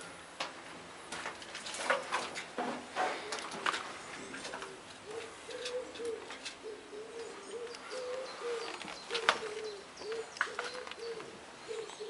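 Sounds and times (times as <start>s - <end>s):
pigeon cooing: 3.0s - 12.0s.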